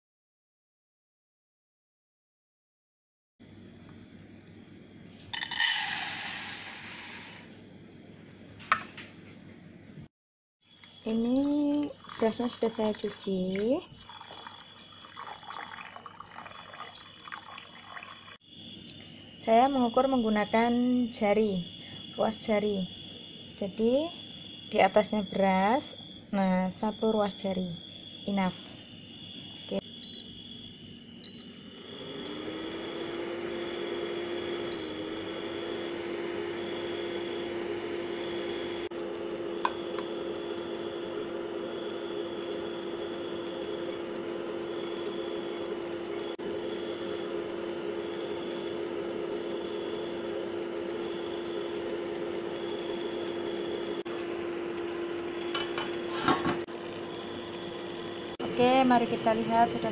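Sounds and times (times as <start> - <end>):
cooktop electric hum: 3.4 - 59.9
fan whirring: 31.8 - 59.9.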